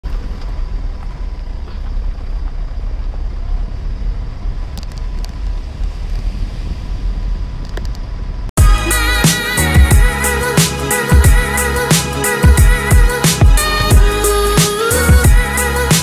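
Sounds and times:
car engine and tyres rumbling: 0:00.0 - 0:16.0.

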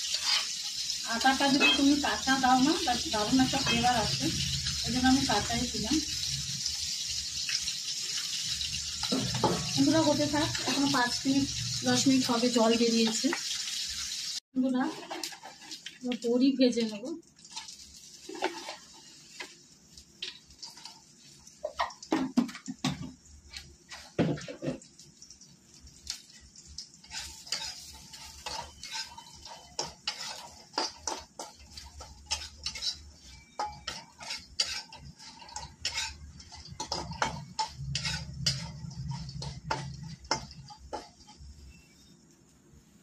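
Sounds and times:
spatula scraping a pan: 0:00.0 - 0:05.4, 0:14.8 - 0:16.0, 0:17.5 - 0:19.6, 0:22.9 - 0:24.8, 0:27.0 - 0:42.1.

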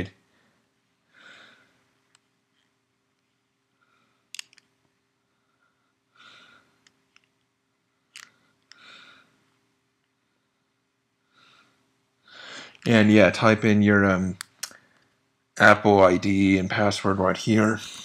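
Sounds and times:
soft breaths: 0:00.1 - 0:13.0
sharp clicks: 0:04.3 - 0:04.7.

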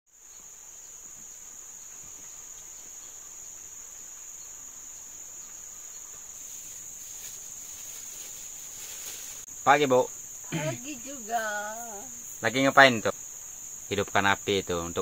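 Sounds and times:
insects calling: 0:00.1 - 0:15.0.

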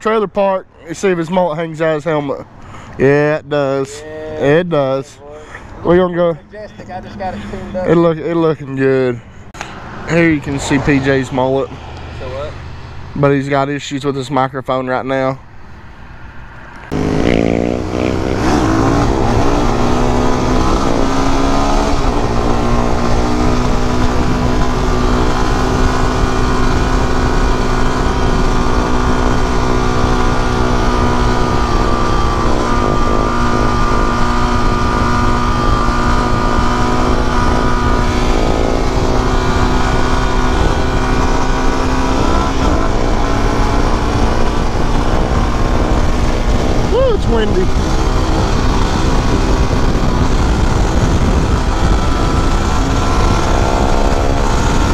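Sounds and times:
motorcycle engine accelerating: 0:16.8 - 0:54.9.

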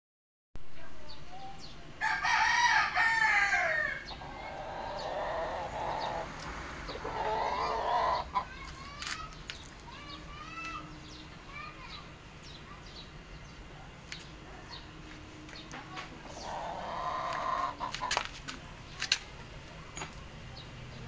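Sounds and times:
rooster crowing: 0:02.0 - 0:04.1.

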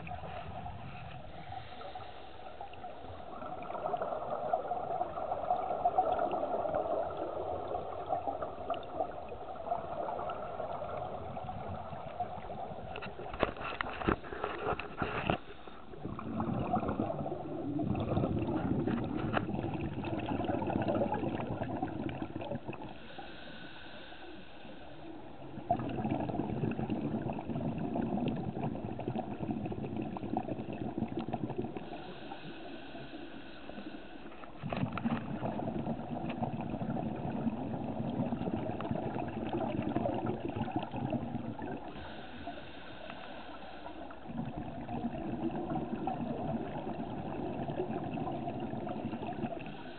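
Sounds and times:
bubbling underwater exhalations: 0:15.9 - 0:23.0, 0:25.4 - 0:32.2, 0:34.6 - 0:42.3, 0:44.0 - 0:49.9
hissing regulator inhalations: 0:22.9 - 0:25.1, 0:31.8 - 0:34.5, 0:41.9 - 0:44.2.

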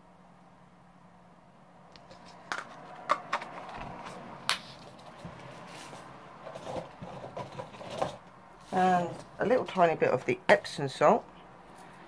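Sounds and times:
small containers clicking: 0:02.0 - 0:04.1.

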